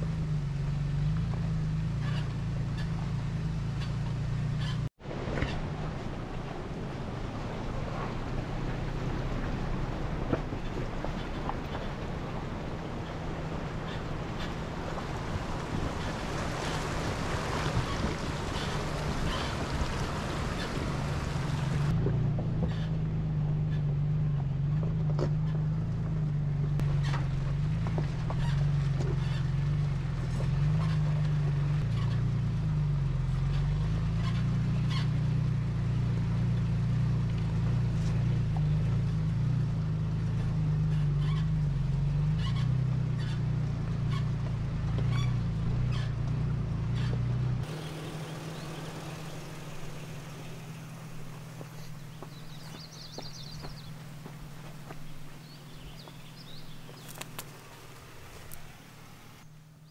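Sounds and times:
wind noise: 0:05.0 - 0:22.9
motor droning: 0:43.2 - 0:59.9.

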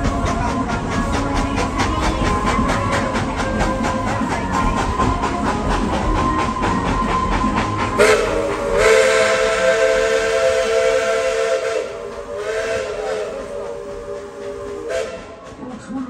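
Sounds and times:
steam hissing: 0:00.0 - 0:16.0
steam whistle blast: 0:08.0 - 0:15.4.

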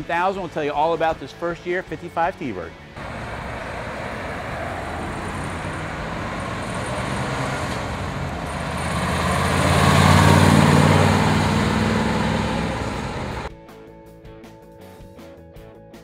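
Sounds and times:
road traffic noise: 0:02.8 - 0:13.5
car engine driving past: 0:03.0 - 0:13.5.

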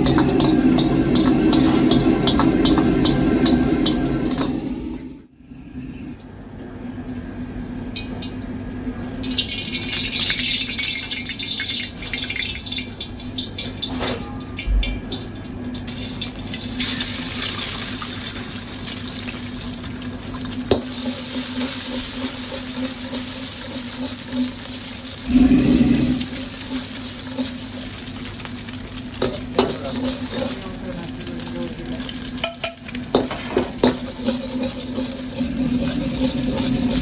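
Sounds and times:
metal ladle scraping and knocking pan: 0:00.0 - 0:04.6
food sizzling in hot oil: 0:00.0 - 0:05.3, 0:09.1 - 0:13.9, 0:15.1 - 0:37.0
steady low hum: 0:25.2 - 0:26.6.

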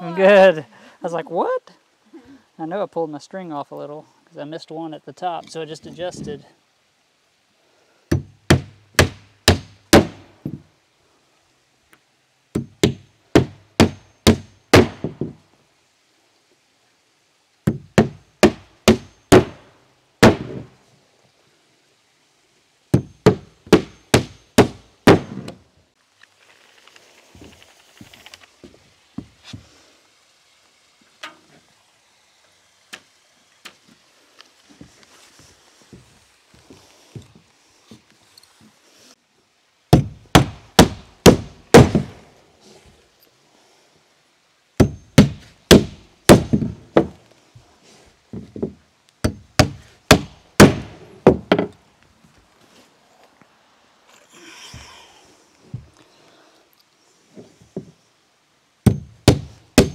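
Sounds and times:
hammer nailing into plywood: 0:08.1 - 0:10.2, 0:12.6 - 0:15.2, 0:17.7 - 0:19.6, 0:23.0 - 0:25.6, 0:40.0 - 0:42.2, 0:44.8 - 0:47.2, 0:49.2 - 0:51.7, 0:58.9 - 0:59.9
footsteps shuffling on plywood: 0:26.4 - 0:29.7, 0:33.6 - 0:38.8, 0:55.6 - 0:56.0.

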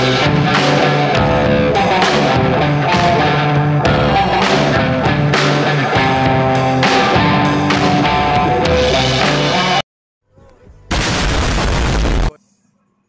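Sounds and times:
guitar music over a beat: 0:00.0 - 0:09.8.

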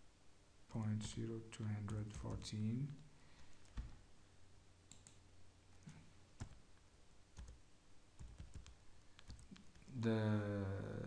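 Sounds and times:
low steady hum: 0:00.0 - 0:11.0
computer keyboard and mouse clicks: 0:04.9 - 0:05.2, 0:05.8 - 0:06.6, 0:07.4 - 0:07.6, 0:08.2 - 0:09.9.

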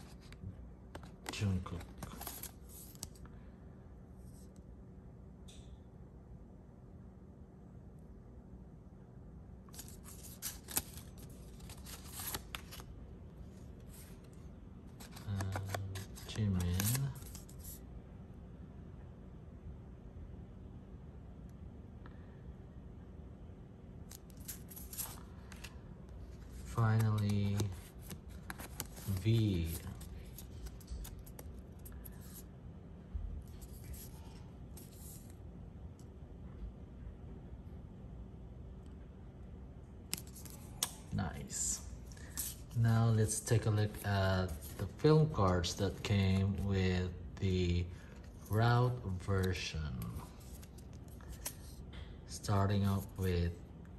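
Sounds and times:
rubbing and scratching of card: 0:00.0 - 0:03.2, 0:09.7 - 0:12.9, 0:13.5 - 0:17.8, 0:24.1 - 0:32.5, 0:33.4 - 0:35.4, 0:42.0 - 0:46.7, 0:48.0 - 0:51.8.

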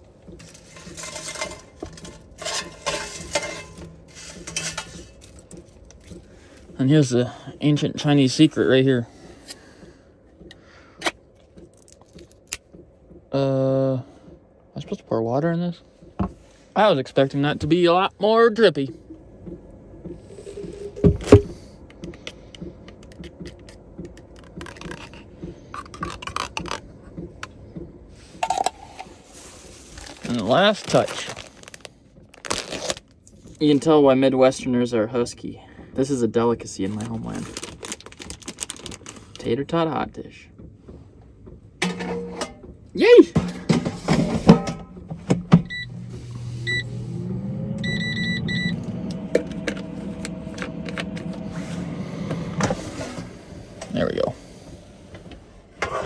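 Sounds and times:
metal spoon scraping in can: 0:00.4 - 0:05.3.

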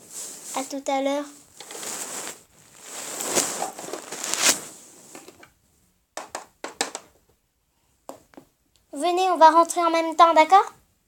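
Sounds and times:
rustling of plastic toys: 0:00.0 - 0:05.5.

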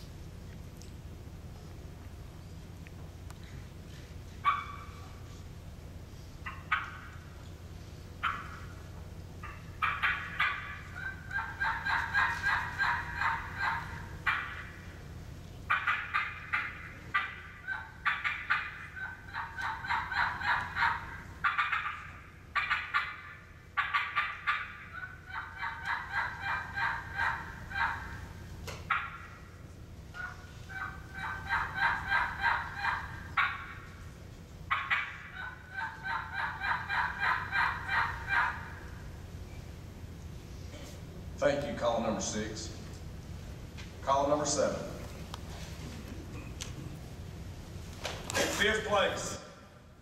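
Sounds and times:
turkey call yelps: 0:04.4 - 0:05.4, 0:06.2 - 0:39.5.

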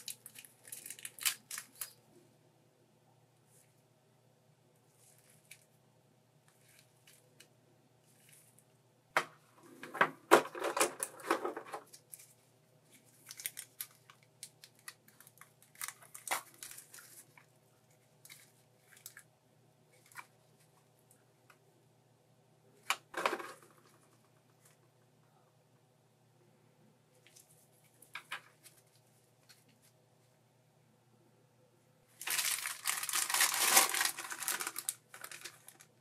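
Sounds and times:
plastic clicking and crinkling: 0:00.0 - 0:02.0, 0:09.2 - 0:12.4, 0:13.0 - 0:17.5, 0:22.8 - 0:24.8, 0:27.2 - 0:29.9, 0:32.2 - 0:35.9.

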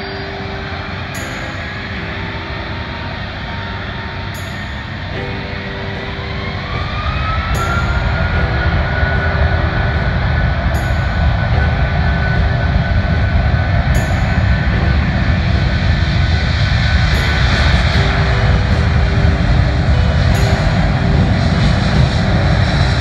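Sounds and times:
jet engines rumbling: 0:00.0 - 0:23.0.

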